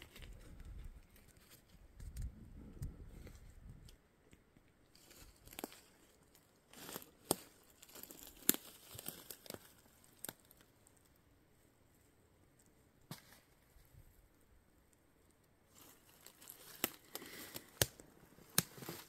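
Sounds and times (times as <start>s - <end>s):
leaves crunching underfoot: 4.9s - 10.6s, 15.7s - 19.0s
twigs snapping: 5.0s - 10.7s, 15.8s - 19.0s.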